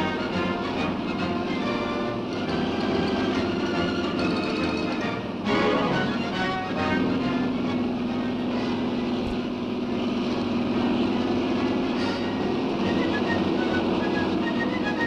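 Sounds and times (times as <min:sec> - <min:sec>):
low mechanical drone: 0:00.0 - 0:15.0.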